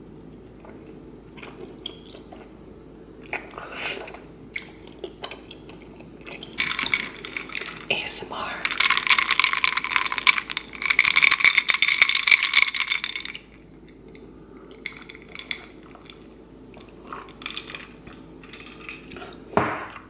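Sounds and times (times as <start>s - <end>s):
glass crackling and clinking: 6.6s - 8.0s, 8.6s - 13.5s, 17.1s - 19.9s.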